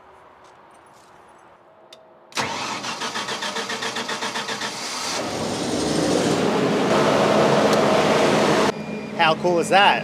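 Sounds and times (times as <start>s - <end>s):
generator engine cranking and running: 2.4s - 8.7s.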